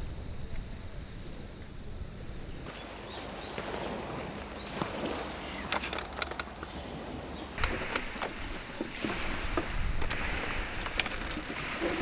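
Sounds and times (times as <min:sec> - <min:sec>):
wind rumbling on microphone: 0:00.0 - 0:12.0
clicks and knocks of camp gear: 0:05.6 - 0:06.8, 0:07.6 - 0:12.0.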